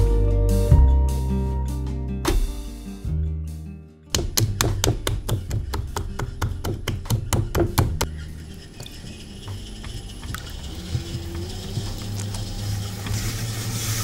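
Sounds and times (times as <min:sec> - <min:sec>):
hands patting clay: 0:04.2 - 0:08.1
wet hands pressing clay: 0:04.2 - 0:08.1
potter's wheel humming: 0:04.7 - 0:14.0.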